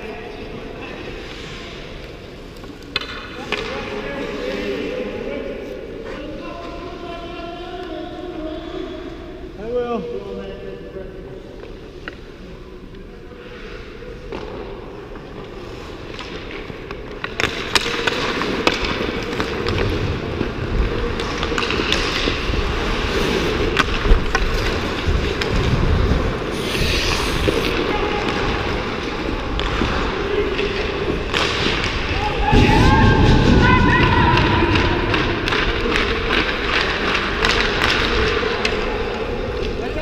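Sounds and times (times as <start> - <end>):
hockey sticks and pucks clicking: 2.0 - 4.2, 14.2 - 26.4, 27.4 - 32.3, 34.3 - 40.0
skates scraping on ice: 15.5 - 32.0.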